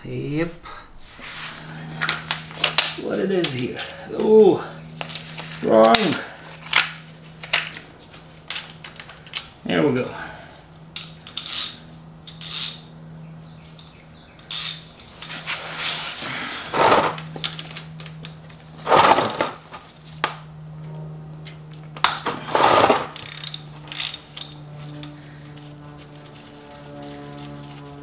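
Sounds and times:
steady low hum: 0:00.0 - 0:28.0
rasping bursts: 0:18.8 - 0:19.8.

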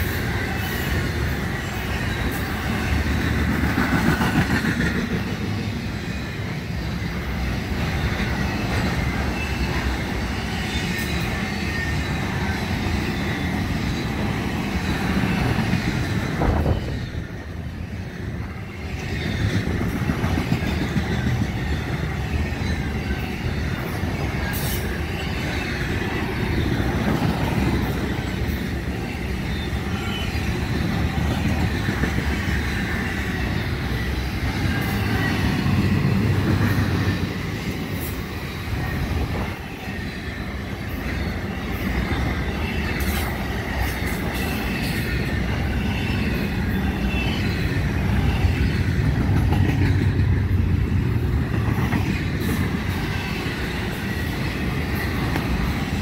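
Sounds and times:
freight train wheels rumbling: 0:00.0 - 0:56.0
high wheel squeal: 0:05.5 - 0:49.8.

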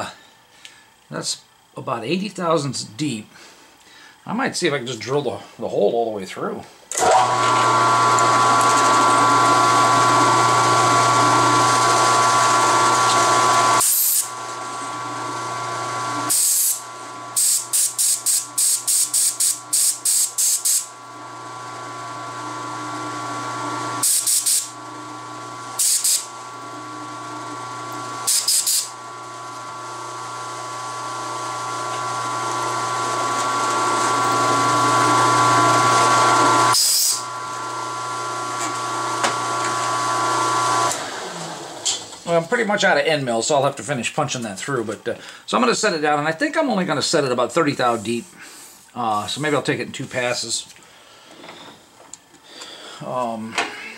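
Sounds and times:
drill motor hum and whine: 0:06.9 - 0:42.1
sharp bursts of hiss: 0:13.8 - 0:14.3, 0:16.3 - 0:16.8, 0:17.4 - 0:20.9, 0:24.0 - 0:24.7, 0:25.8 - 0:26.3, 0:28.3 - 0:28.9.

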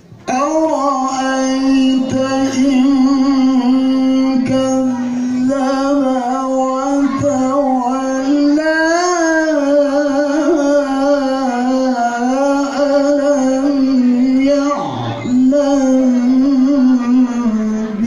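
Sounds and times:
person reciting melodically: 0:00.0 - 0:18.0.

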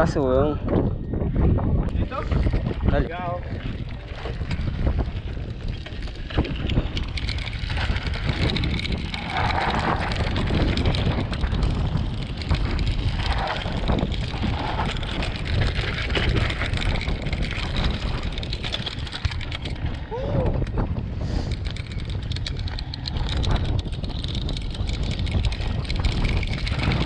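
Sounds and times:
bike rattling over bumps: 0:00.0 - 0:27.0
wind buffeting microphone: 0:00.0 - 0:27.0
tyres crunching over stones: 0:02.0 - 0:20.1.

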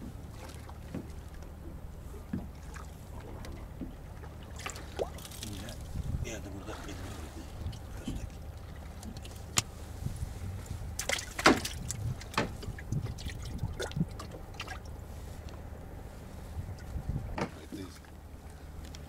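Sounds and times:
steady low hum: 0:00.0 - 0:19.0
water lapping against boat hull: 0:00.0 - 0:19.0
clicks and knocks in boat: 0:00.1 - 0:06.0, 0:06.9 - 0:09.7, 0:11.0 - 0:14.9, 0:16.8 - 0:18.2.

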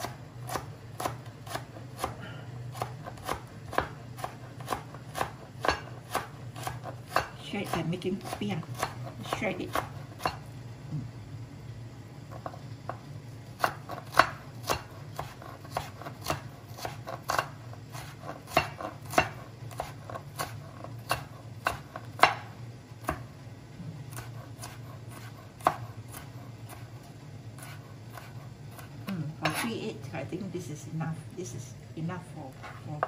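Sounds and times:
cleaver chopping on plastic board: 0:02.8 - 0:09.0.

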